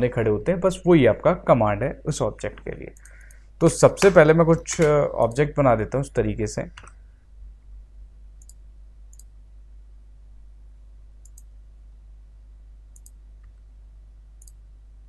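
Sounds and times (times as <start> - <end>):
faint low hum: 0.0 - 15.0
computer mouse clicking: 2.9 - 3.4, 8.4 - 9.3, 11.2 - 11.5, 12.9 - 13.6, 14.4 - 14.6.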